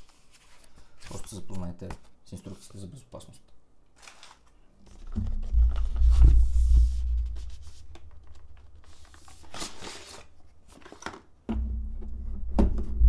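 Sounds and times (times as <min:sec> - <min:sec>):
cardboard packaging rustling: 0:04.0 - 0:11.4
low hum: 0:04.9 - 0:09.2, 0:11.5 - 0:13.0
swish: 0:05.2 - 0:08.2.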